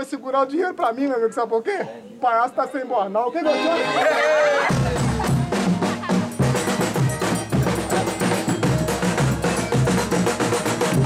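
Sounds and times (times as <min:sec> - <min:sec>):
held instrumental notes: 0:03.4 - 0:11.0
drums and percussion beating: 0:04.6 - 0:11.0.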